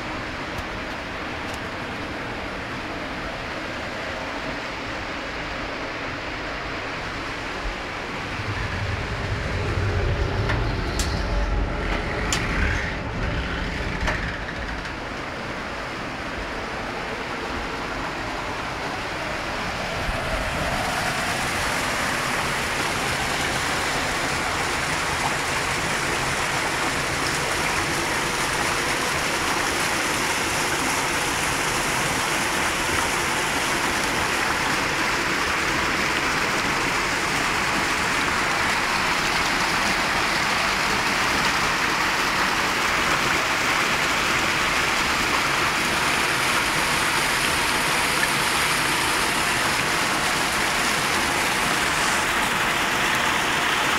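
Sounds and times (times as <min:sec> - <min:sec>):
water rushing down flume: 0:00.0 - 0:53.9
low rumble: 0:06.6 - 0:28.4.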